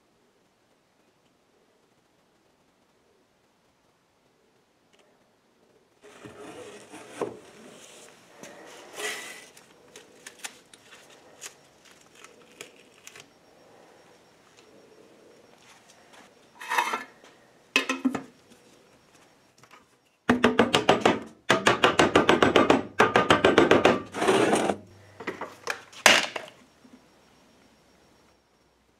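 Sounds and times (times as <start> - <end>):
rustling: 4.9 - 17.5.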